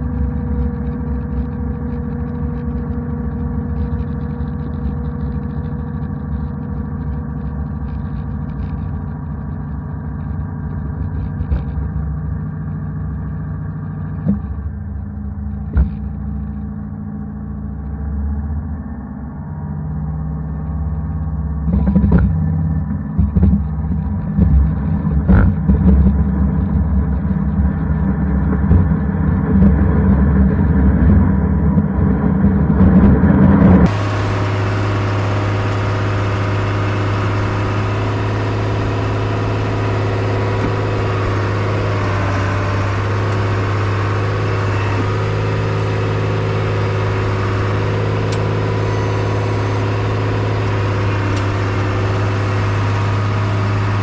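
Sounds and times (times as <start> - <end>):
engine running steadily: 0.0 - 54.0
snowcat tracks rumbling clatter: 0.0 - 54.0.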